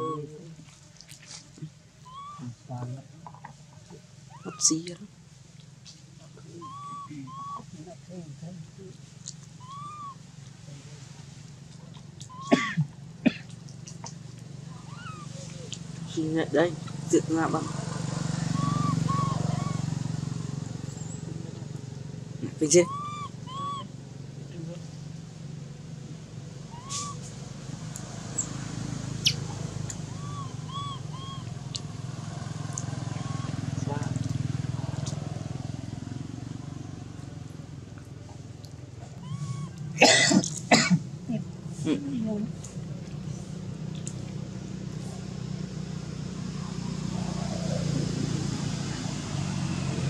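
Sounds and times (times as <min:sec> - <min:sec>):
vehicle engine humming: 0:00.0 - 0:50.0
whistle-like animal calls: 0:02.0 - 0:02.5, 0:06.5 - 0:07.7, 0:09.6 - 0:10.2, 0:14.8 - 0:15.4, 0:18.4 - 0:19.9, 0:22.7 - 0:23.9, 0:26.7 - 0:27.3, 0:29.2 - 0:31.5, 0:33.0 - 0:33.6, 0:39.2 - 0:39.9.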